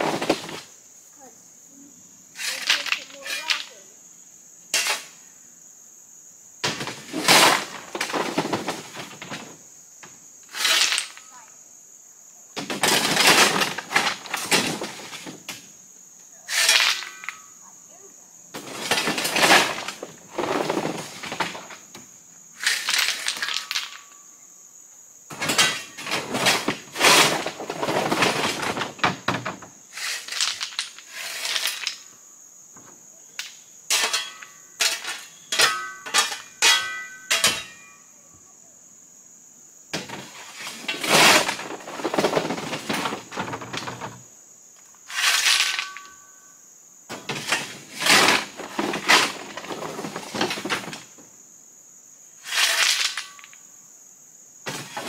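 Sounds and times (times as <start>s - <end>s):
rocks clattering and scraping: 0.0s - 0.7s, 6.7s - 9.7s, 10.4s - 11.4s, 12.6s - 15.6s, 16.5s - 17.6s, 18.6s - 24.2s, 25.3s - 32.1s, 40.0s - 46.3s, 47.1s - 51.2s, 52.5s - 53.6s, 54.7s - 55.0s.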